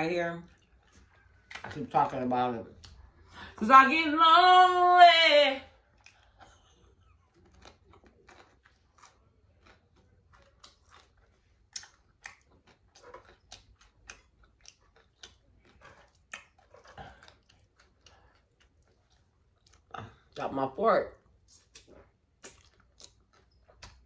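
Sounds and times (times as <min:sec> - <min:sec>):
person chewing food: 0:00.4 - 0:01.6, 0:05.7 - 0:20.4, 0:21.2 - 0:24.0.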